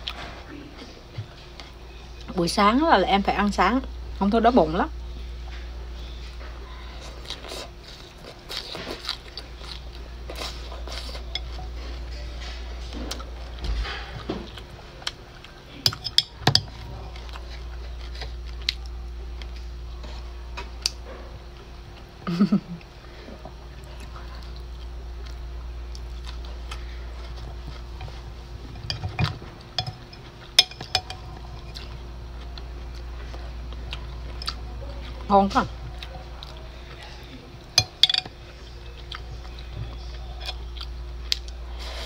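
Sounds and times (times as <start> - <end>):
low hum: 9.3 - 42.0
metal chopsticks tapping glass: 28.9 - 31.2, 37.8 - 38.3.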